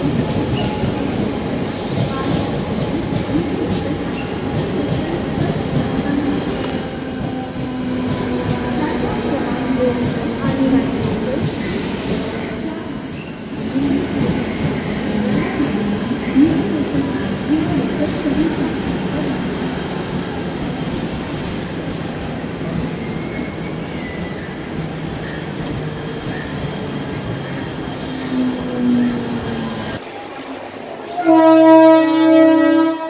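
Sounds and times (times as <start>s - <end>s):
train wheels rumbling on rail: 0.0s - 30.1s
train horn blast: 31.2s - 33.0s.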